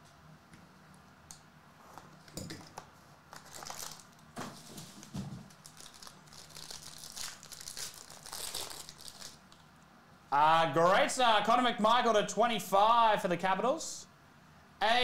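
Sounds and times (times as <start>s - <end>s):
foil wrapper crinkling and tearing: 3.3s - 4.2s, 5.5s - 9.6s.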